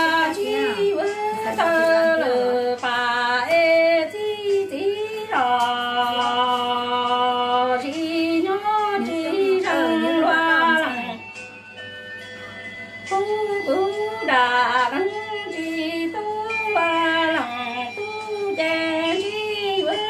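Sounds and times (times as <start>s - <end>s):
woman singing unaccompanied: 0.0s - 11.2s, 13.1s - 20.0s.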